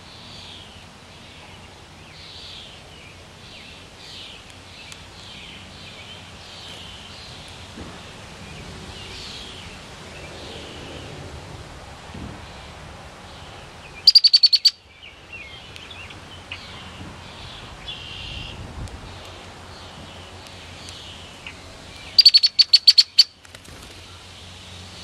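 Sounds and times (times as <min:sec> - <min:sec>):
soft bird chirps: 0:13.3 - 0:24.6
blackbird chattering call: 0:14.0 - 0:14.8, 0:20.9 - 0:23.4.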